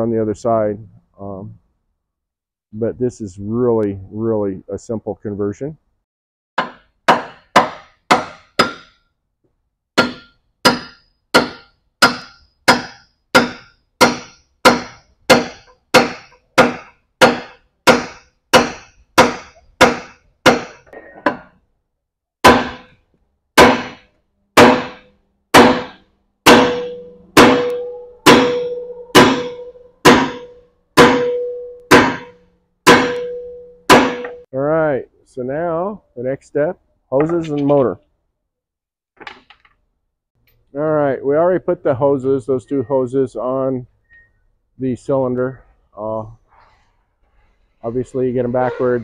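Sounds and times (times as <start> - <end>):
hammer striking steel: 6.6 - 9.0, 10.0 - 21.5, 22.4 - 23.0, 23.6 - 34.5.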